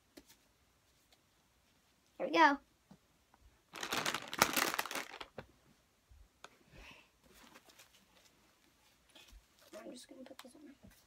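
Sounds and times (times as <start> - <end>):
diaper crinkling: 3.7 - 5.4.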